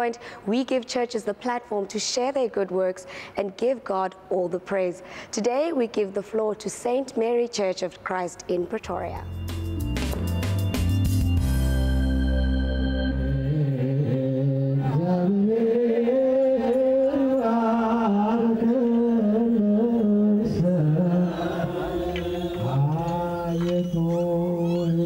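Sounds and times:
music sting: 9.3 - 14.7
liturgical chanting: 13.2 - 25.0.

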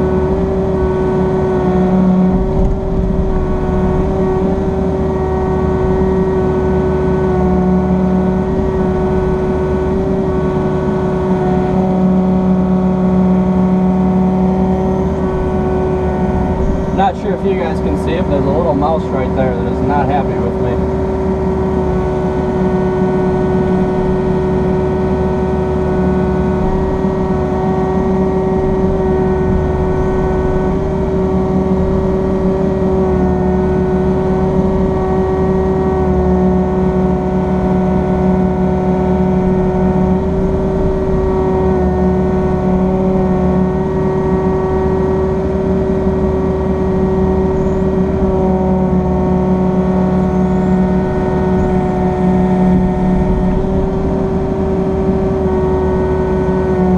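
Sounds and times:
excavator engine running: 0.0 - 56.9.

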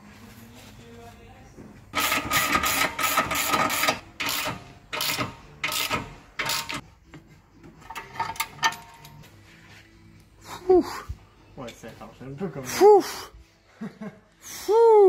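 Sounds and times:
socket ratchet clicking: 2.0 - 6.8.

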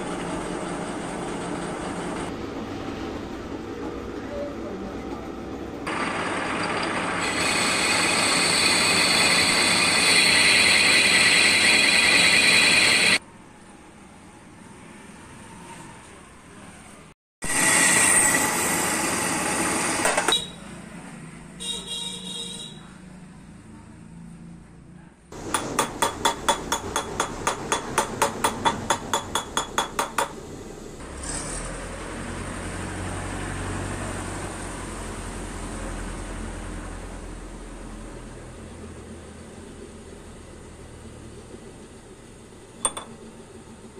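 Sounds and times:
lathe machine running: 5.9 - 13.2, 25.4 - 31.0
lathe tool screeching on steel: 5.9 - 13.2, 17.5 - 20.3
hammer striking steel rod: 25.4 - 30.4, 42.8 - 43.2.

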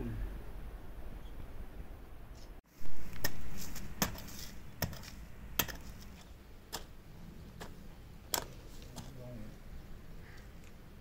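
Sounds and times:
spade chopping into earth: 3.2 - 6.9.

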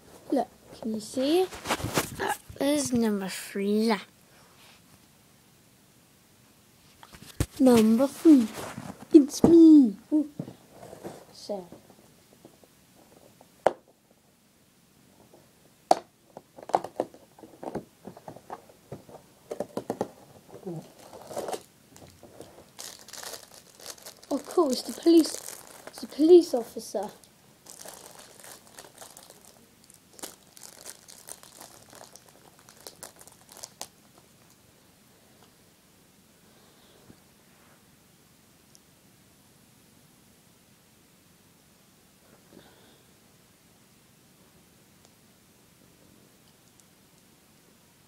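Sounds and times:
wrapper crinkling: 18.2 - 34.6.

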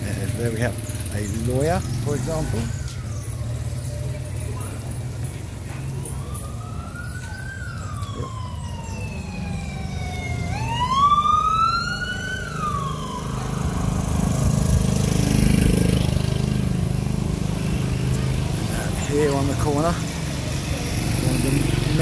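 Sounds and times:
passing road vehicle rushing: 0.0 - 22.0
siren wailing: 1.9 - 4.0, 5.9 - 15.0.

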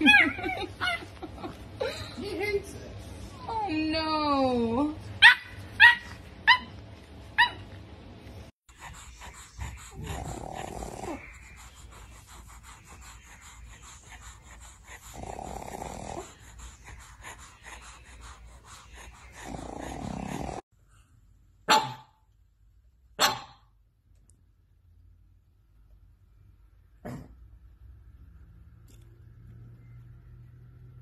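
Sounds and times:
puppy yipping: 5.2 - 6.8, 7.4 - 7.7
dog snoring: 8.8 - 20.6.

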